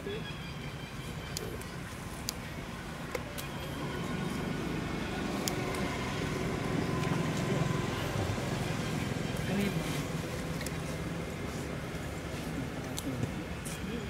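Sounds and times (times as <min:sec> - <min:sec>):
motor vehicle rumble: 0:00.6 - 0:14.0
faint sharp clicks: 0:01.3 - 0:02.4.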